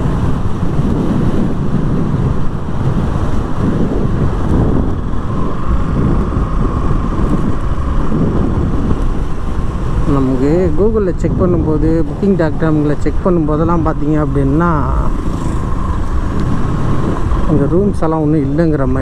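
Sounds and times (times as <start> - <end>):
wind buffeting microphone: 0.0 - 19.0
motorcycle engine running: 14.0 - 17.8.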